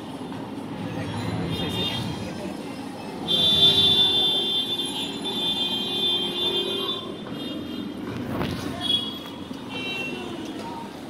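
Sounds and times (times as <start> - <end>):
street traffic rumble: 0.0 - 11.0
vehicle horn blaring: 3.2 - 7.9.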